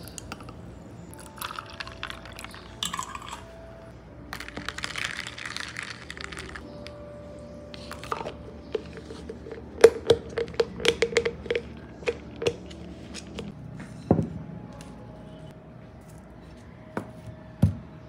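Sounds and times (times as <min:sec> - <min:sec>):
utensil tapping on dishware: 0:08.8 - 0:12.8.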